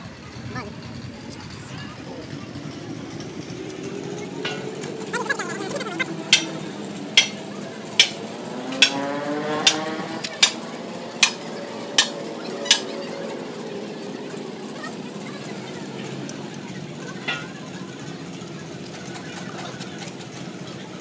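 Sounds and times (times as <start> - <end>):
steady background hum: 1.3 - 9.0.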